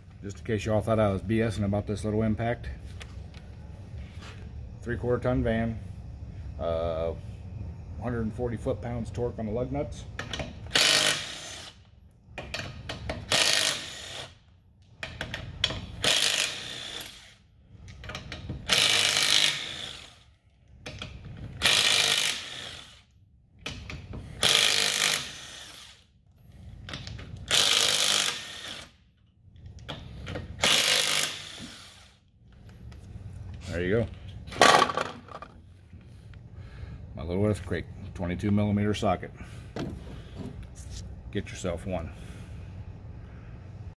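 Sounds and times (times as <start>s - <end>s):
impact wrench hammering: 23.6s - 25.8s, 30.3s - 31.9s.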